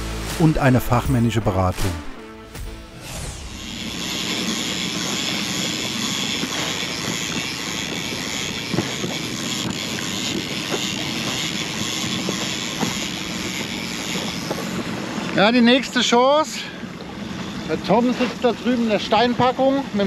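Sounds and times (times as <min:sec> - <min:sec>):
boat motor droning: 0:00.0 - 0:20.0.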